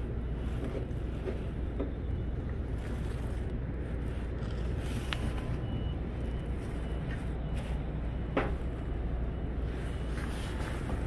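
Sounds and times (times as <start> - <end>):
low outdoor rumble: 0.0 - 11.0
faint high beeps: 5.1 - 10.1.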